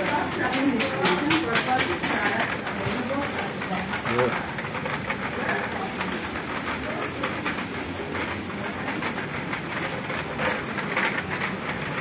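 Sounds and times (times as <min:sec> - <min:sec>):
rattling rolling noise with clicks: 0:00.0 - 0:12.0.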